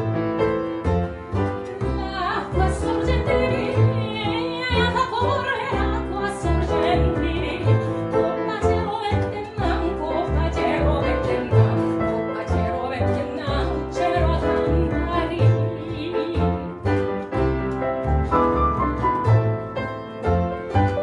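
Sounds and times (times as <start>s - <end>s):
piano: 0.0s - 21.0s
plucked double bass: 0.0s - 21.0s
soprano singing with vibrato: 1.9s - 16.8s.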